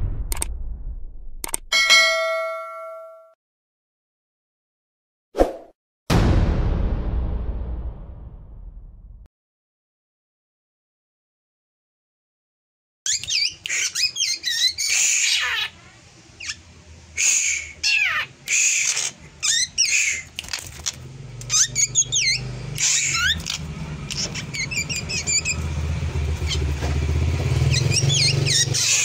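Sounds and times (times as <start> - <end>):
bird singing whistling song: 13.1 - 15.0, 24.1 - 25.6, 27.7 - 29.0
low engine hum: 20.8 - 28.8.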